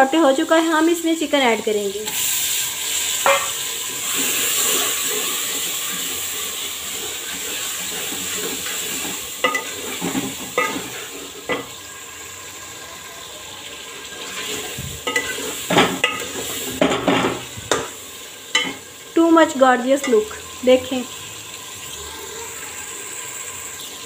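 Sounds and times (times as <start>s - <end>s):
chicken sizzling in hot oil: 0.0s - 24.0s
spoon scraping a metal pot: 3.2s - 6.0s, 15.0s - 16.9s.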